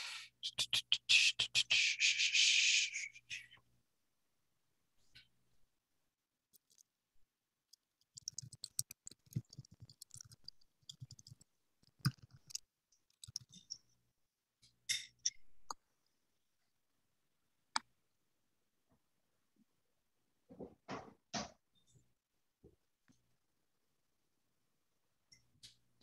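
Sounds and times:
faint keyboard typing: 6.5 - 6.9, 7.7 - 13.9.

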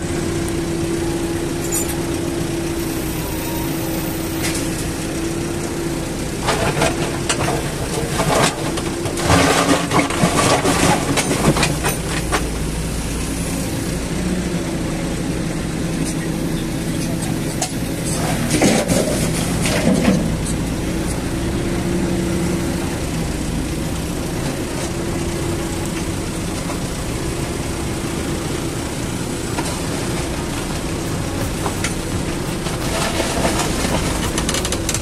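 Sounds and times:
diesel engine running: 0.0 - 35.0
machine clattering: 31.0 - 35.0.

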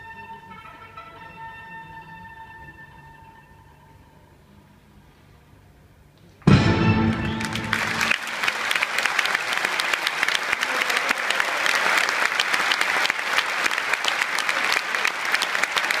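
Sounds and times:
orchestra chord ringing: 6.5 - 8.2
audience applauding: 7.0 - 16.0.

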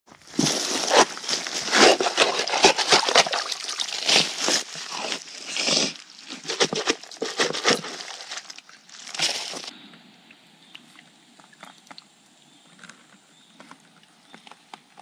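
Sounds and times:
shovel scraping into wet mud: 0.3 - 9.7.

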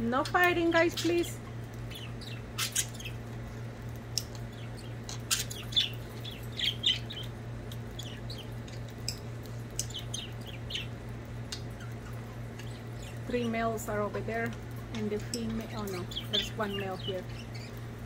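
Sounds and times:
steady low hum: 0.0 - 18.0
budgerigars chirping: 0.8 - 3.2, 4.5 - 7.3, 8.0 - 11.0, 15.2 - 17.8.

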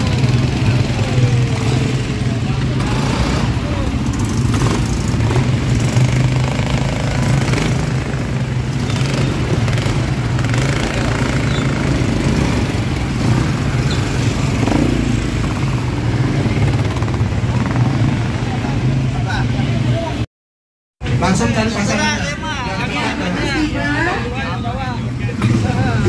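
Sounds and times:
atv engines running: 0.0 - 20.2, 21.0 - 26.0.

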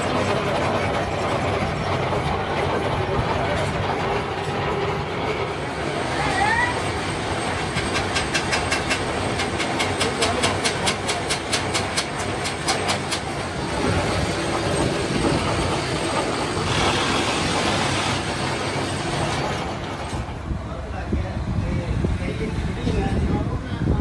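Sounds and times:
machine grinding: 0.0 - 20.4
gear cutting machine clatter: 7.0 - 20.3.

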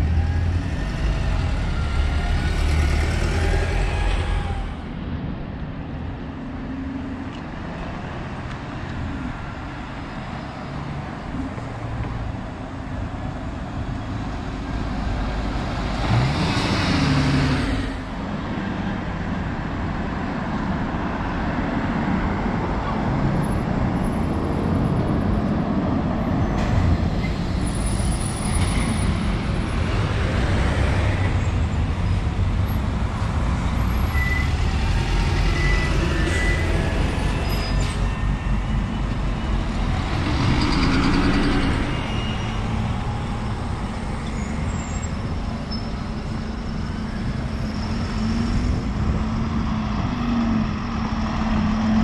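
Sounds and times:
buses driving past: 0.0 - 52.0
tyres on road: 0.0 - 52.0.

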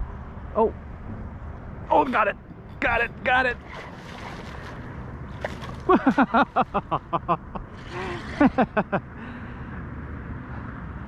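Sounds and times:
wind: 0.0 - 11.0
water noise: 1.7 - 9.0
person laughing: 5.9 - 9.0.

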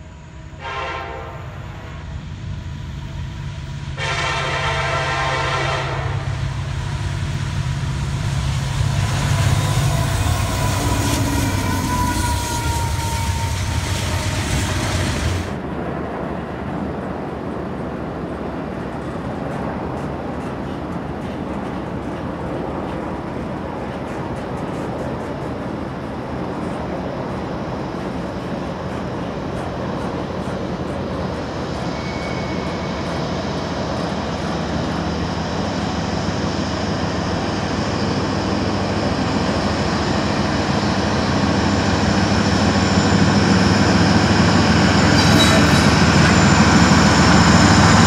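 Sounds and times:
train air horn blasts: 0.6 - 2.1, 4.0 - 6.4, 9.7 - 15.4
locomotive engine rumble: 1.6 - 15.8, 18.2 - 48.0.

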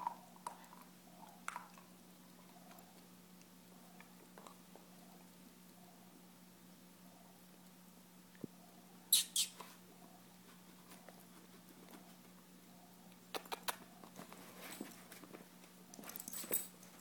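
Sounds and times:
small dog squeaking: 9.1 - 9.7.

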